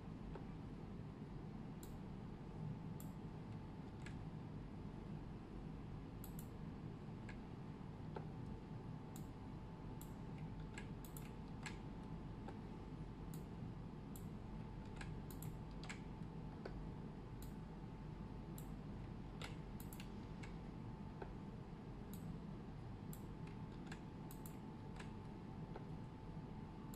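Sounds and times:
faint low hum: 0:00.0 - 0:26.9
keyboard and mouse clicks: 0:10.0 - 0:12.6, 0:14.2 - 0:16.8, 0:19.4 - 0:20.6, 0:23.1 - 0:25.9.

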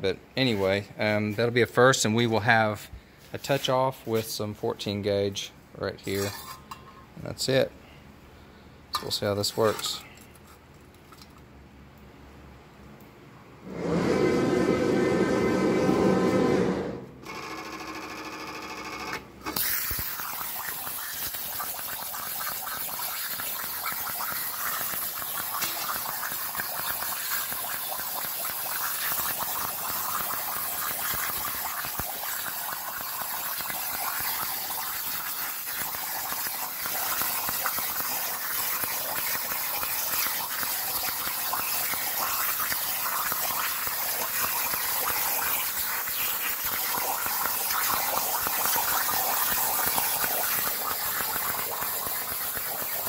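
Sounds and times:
machine hum: 0:13.6 - 0:18.2
plasma torch arc hissing: 0:19.6 - 0:53.0.

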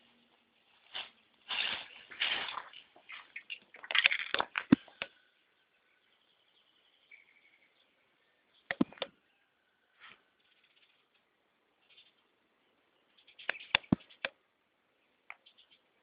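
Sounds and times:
sharp clicks: 0:08.7 - 0:09.1, 0:13.4 - 0:14.4.

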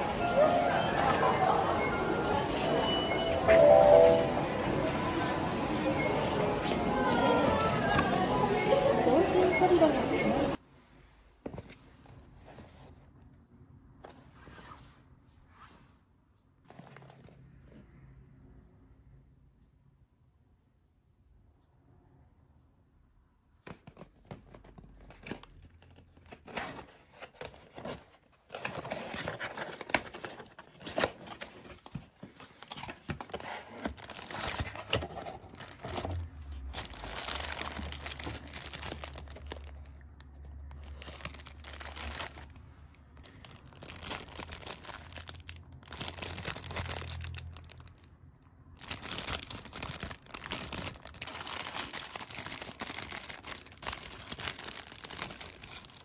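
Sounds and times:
plastic bags crinkling and tearing: 0:32.6 - 0:42.6, 0:43.2 - 0:48.1, 0:48.8 - 0:56.0.

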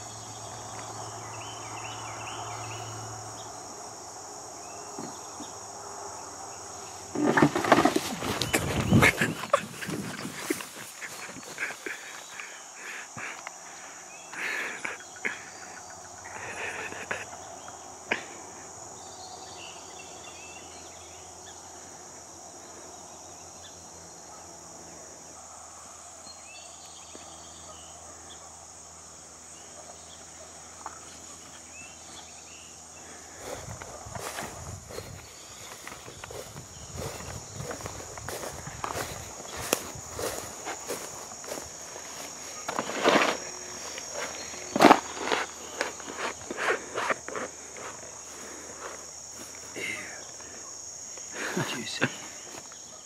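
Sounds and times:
insects singing: 0:00.0 - 0:53.0
knocks and rustles: 0:07.1 - 0:11.7
footsteps through grass: 0:07.6 - 0:12.4, 0:33.2 - 0:49.9.

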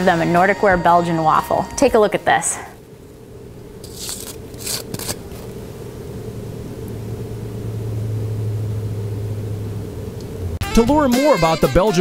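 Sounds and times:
steady low hum: 0:00.0 - 0:10.7.

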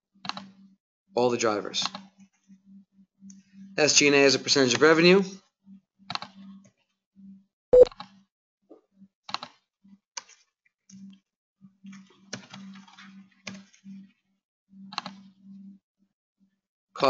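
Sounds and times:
mouse clicks: 0:00.2 - 0:00.6, 0:06.1 - 0:06.4, 0:09.3 - 0:09.6, 0:14.9 - 0:15.3
computer keystrokes: 0:06.1 - 0:06.4, 0:14.9 - 0:15.2.

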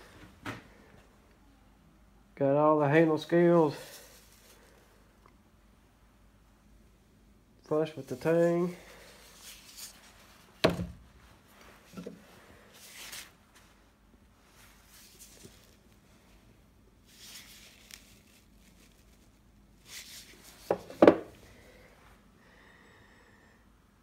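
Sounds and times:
paper towel rustling: 0:03.5 - 0:04.8, 0:07.8 - 0:21.4
knives knocking on wooden workbench: 0:20.7 - 0:21.3.

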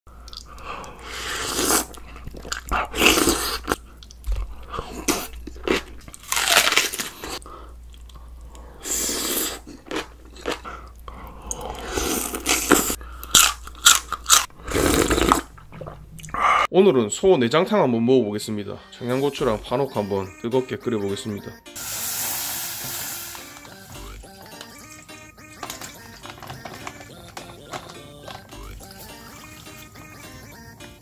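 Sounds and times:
person chewing crunchy vegetables: 0:00.2 - 0:16.4.

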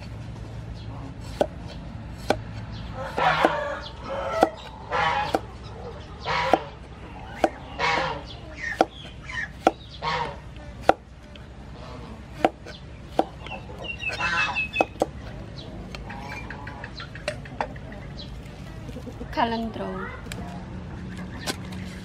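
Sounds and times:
chickens clucking: 0:00.0 - 0:22.0
cleaver chopping on wooden board: 0:01.2 - 0:03.6, 0:04.4 - 0:05.5, 0:06.4 - 0:07.7, 0:08.6 - 0:09.9, 0:10.8 - 0:11.1, 0:12.3 - 0:13.5, 0:14.1 - 0:15.2.

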